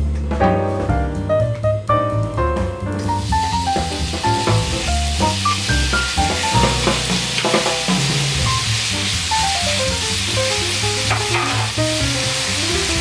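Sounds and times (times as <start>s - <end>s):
meat sizzling in a frying pan: 3.0s - 13.0s.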